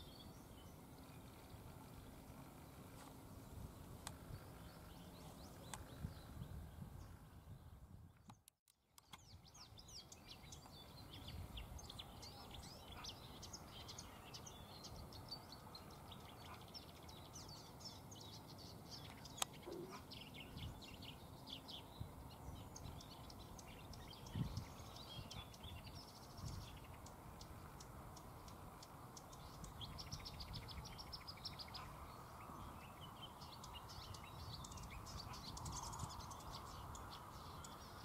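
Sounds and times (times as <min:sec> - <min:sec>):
warbler singing: 0:00.0 - 0:07.8, 0:09.0 - 0:38.0.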